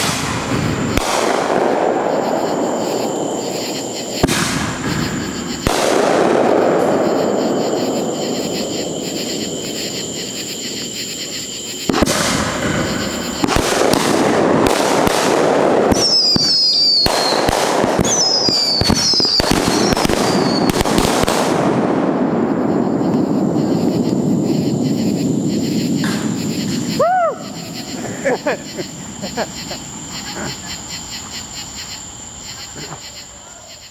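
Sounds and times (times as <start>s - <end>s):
fireworks bangs and crackle: 0.0s - 33.0s.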